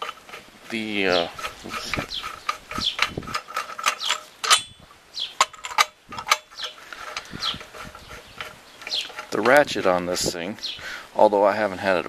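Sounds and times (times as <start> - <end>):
ratchet pawl clicking: 1.1 - 4.7.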